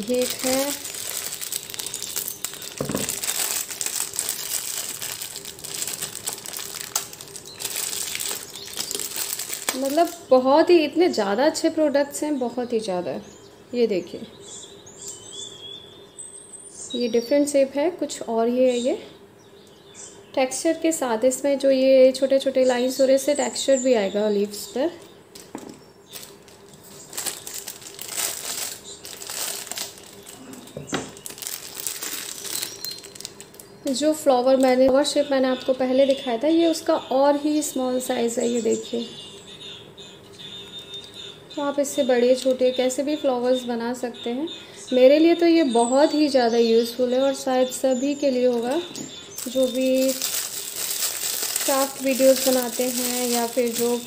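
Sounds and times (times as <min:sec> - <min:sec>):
scissors cutting plastic: 0:00.0 - 0:10.2, 0:49.4 - 0:54.0
plastic packaging crinkling: 0:00.0 - 0:10.4, 0:25.4 - 0:34.8, 0:41.9 - 0:43.0, 0:48.6 - 0:54.0.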